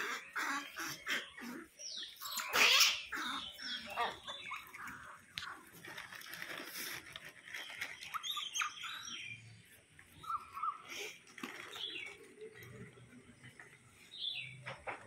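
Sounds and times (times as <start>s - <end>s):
monkey chirps: 0.0s - 4.9s
monkey warbling call: 0.0s - 5.2s.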